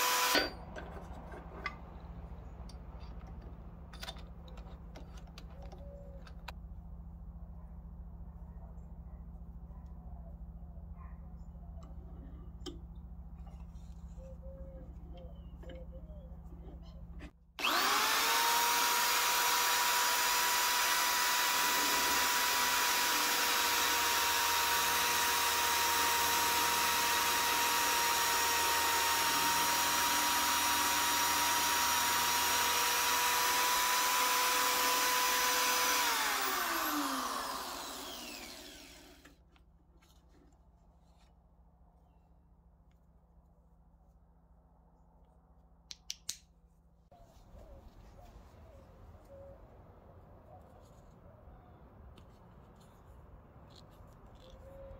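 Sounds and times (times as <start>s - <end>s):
drill press motor whining: 0.0s - 0.6s, 17.6s - 39.4s.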